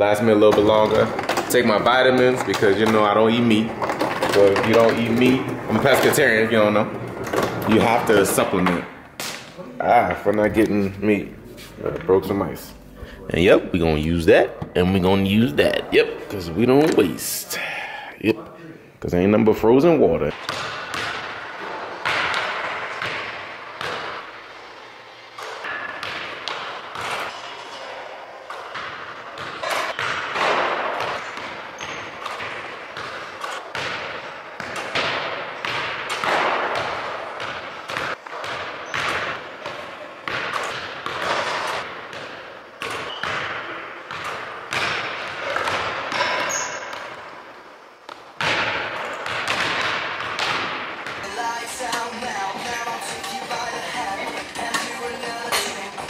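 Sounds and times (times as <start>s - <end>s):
ball striking backboard and rim: 20.4s - 24.2s, 25.4s - 27.4s, 28.7s - 47.3s, 48.1s - 51.2s
basketball bouncing on wooden floor: 20.4s - 24.2s.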